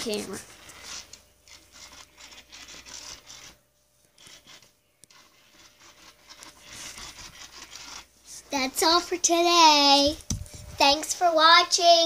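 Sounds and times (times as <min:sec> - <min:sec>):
cat scratching microphone: 0:00.0 - 0:08.7.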